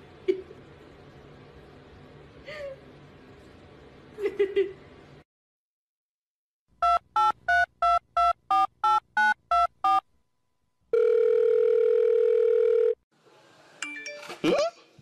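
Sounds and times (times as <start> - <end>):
phone ringing tone: 10.9 - 13.0.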